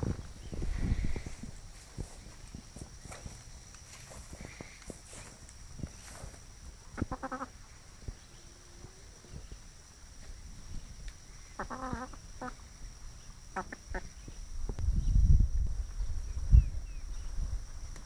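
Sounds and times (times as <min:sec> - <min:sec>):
hen clucking softly: 0:07.0 - 0:07.6, 0:11.6 - 0:12.6, 0:13.6 - 0:14.1.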